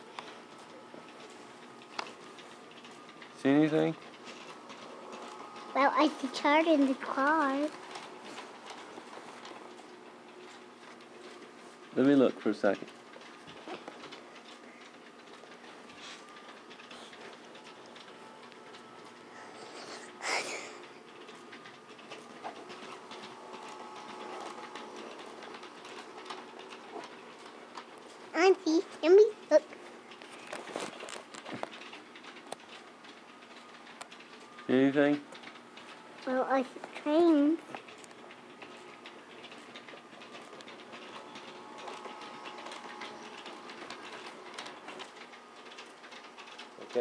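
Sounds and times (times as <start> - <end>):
wheels clicking on rails: 0.0 - 47.0
model train motor hum: 3.2 - 10.2, 15.6 - 29.7.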